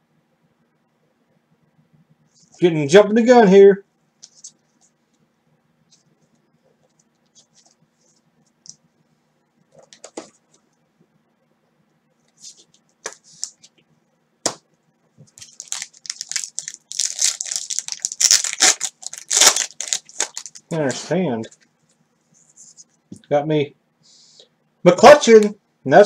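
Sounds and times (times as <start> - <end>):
foil pack tearing: 15.4 - 20.6
foil wrapper crinkling: 15.4 - 20.7.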